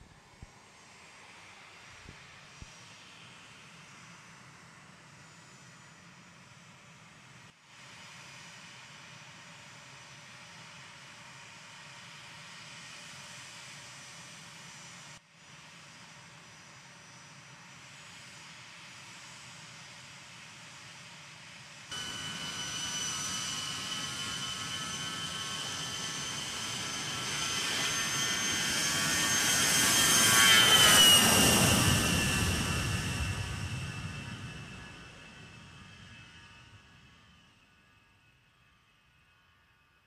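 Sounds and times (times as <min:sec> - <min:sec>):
jet engines whining: 0:21.9 - 0:37.4.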